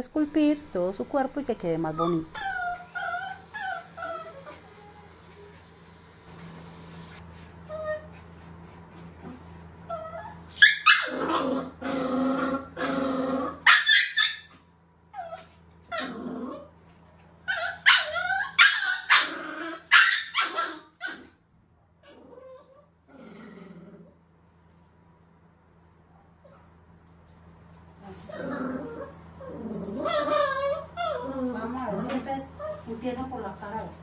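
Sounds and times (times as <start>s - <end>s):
puppy growling barking and yelping: 1.8s - 5.6s, 7.6s - 8.4s, 9.2s - 21.4s, 22.0s - 24.2s, 28.2s - 32.9s.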